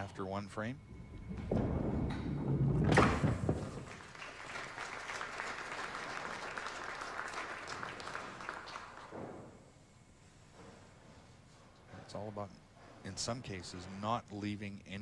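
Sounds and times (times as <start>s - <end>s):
bowling ball rolling: 0.7s - 6.5s
ball crashing into pins: 1.0s - 4.2s
audience applause: 2.9s - 9.5s.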